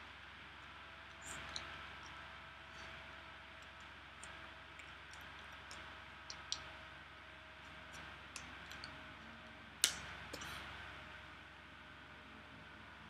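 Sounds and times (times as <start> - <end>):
low room hum: 0.0 - 13.0.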